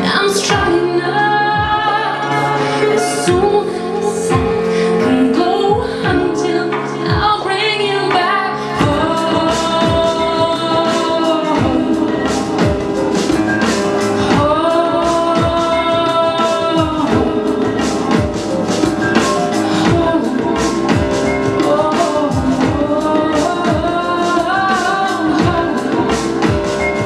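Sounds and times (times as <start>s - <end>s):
music with kick-drum beat: 5.7s - 7.5s, 8.1s - 27.0s.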